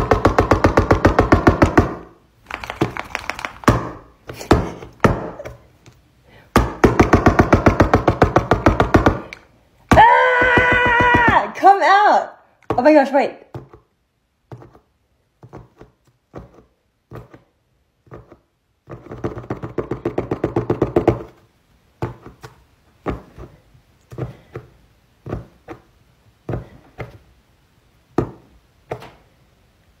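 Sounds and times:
rapid clicks: 0:02.4 - 0:03.7.

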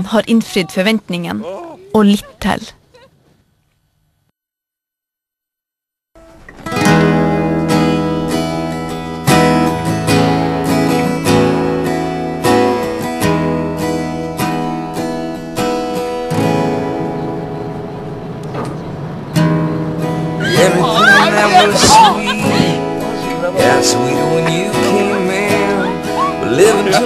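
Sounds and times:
strummed acoustic guitar chords: 0:06.2 - 0:27.0.

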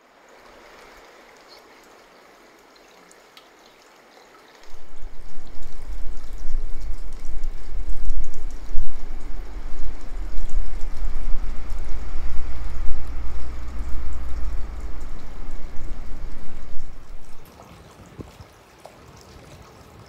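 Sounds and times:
wind noise on microphone: 0:04.7 - 0:18.5.

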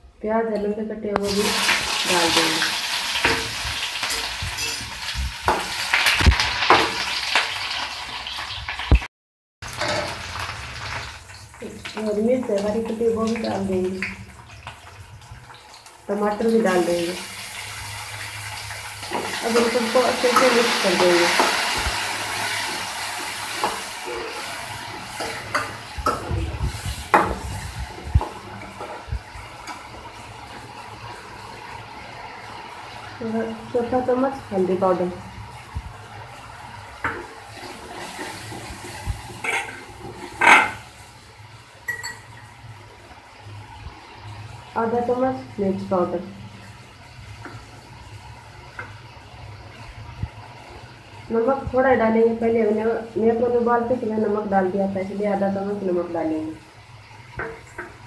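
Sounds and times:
onions sizzling in hot oil: 0:01.2 - 0:58.0
ladle scraping and knocking pan: 0:37.1 - 0:40.9.

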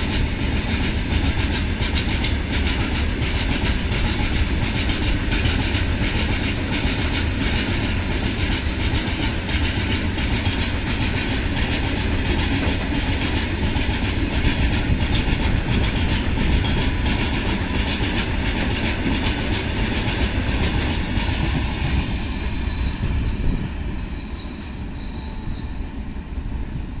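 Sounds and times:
freight train rolling past: 0:00.0 - 0:27.0.

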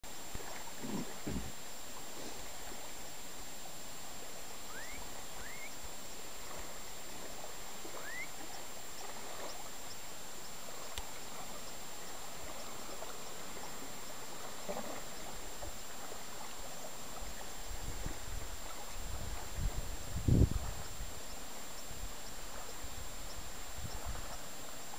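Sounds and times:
light wind: 0:00.0 - 0:24.9
rippling water: 0:00.0 - 0:24.9
short rising whistles: 0:04.7 - 0:05.8, 0:08.0 - 0:08.3.

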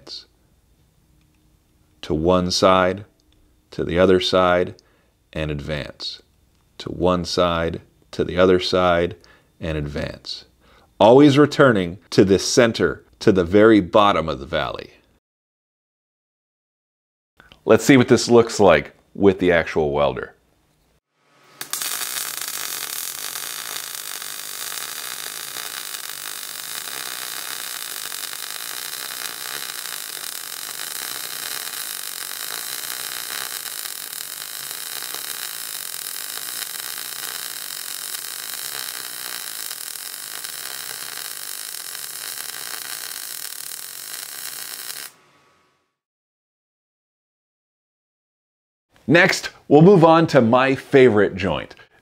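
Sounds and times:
welding arc hissing: 0:21.2 - 0:45.4.

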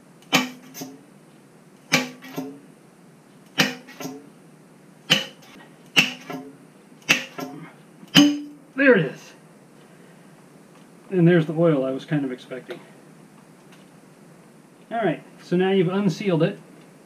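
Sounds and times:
sharp metallic clanks: 0:00.2 - 0:01.0, 0:01.9 - 0:02.6, 0:03.5 - 0:04.3, 0:05.1 - 0:08.7.

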